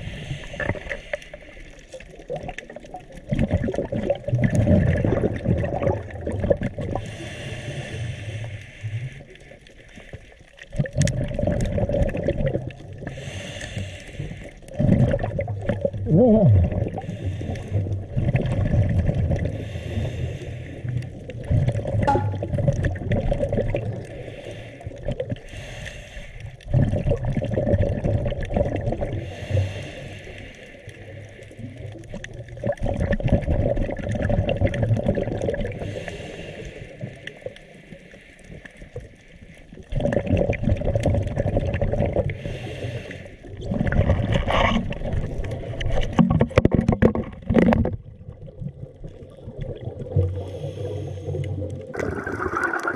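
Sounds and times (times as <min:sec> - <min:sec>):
bubbling exhales underwater: 0:01.9 - 0:08.0, 0:10.6 - 0:13.4, 0:14.5 - 0:20.1, 0:20.8 - 0:25.6, 0:26.6 - 0:29.8, 0:30.9 - 0:36.3, 0:39.8 - 0:42.7, 0:43.4 - 0:52.9
hissing regulator inhales: 0:07.0 - 0:09.3, 0:13.1 - 0:14.6, 0:19.5 - 0:21.0, 0:24.1 - 0:26.6, 0:29.2 - 0:31.5, 0:35.8 - 0:37.0, 0:42.4 - 0:43.4, 0:50.4 - 0:51.5.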